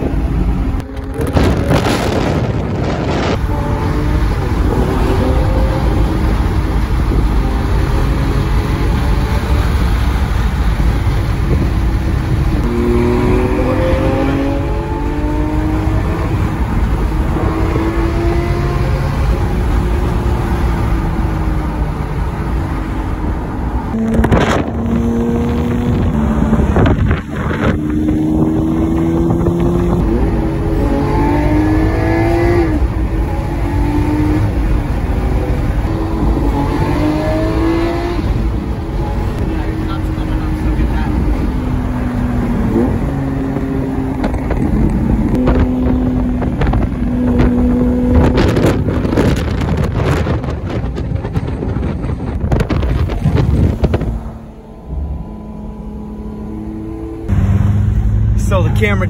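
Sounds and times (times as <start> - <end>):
car engine accelerating: 0.0 - 59.0
road and wind rumble: 0.0 - 59.0.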